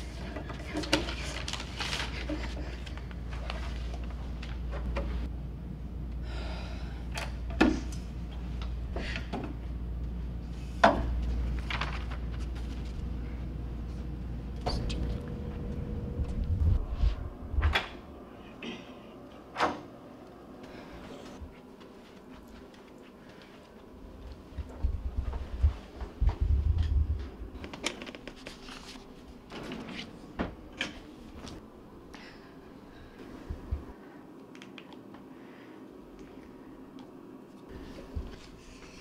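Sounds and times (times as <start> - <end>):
low steady hum: 0.0 - 39.0.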